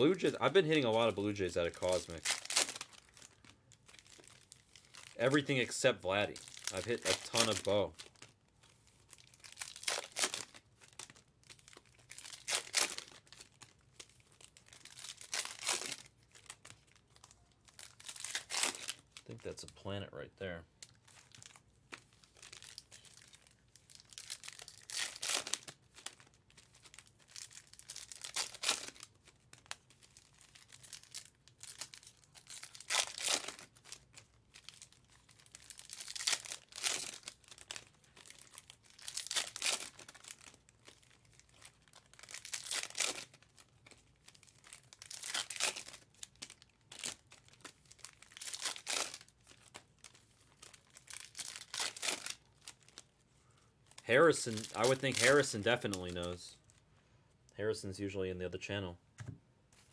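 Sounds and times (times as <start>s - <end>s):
cards being handled: 0.0s - 16.8s
foil wrappers tearing and crinkling: 0.0s - 19.7s, 20.8s - 53.1s, 53.9s - 56.4s.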